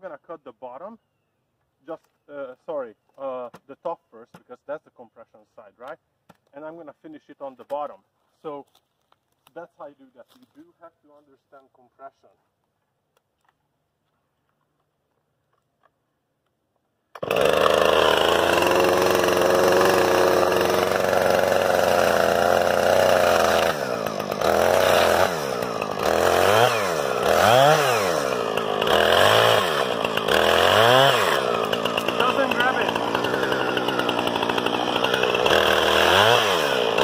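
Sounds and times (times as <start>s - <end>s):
chainsaw cutting into log: 17.1s - 37.0s.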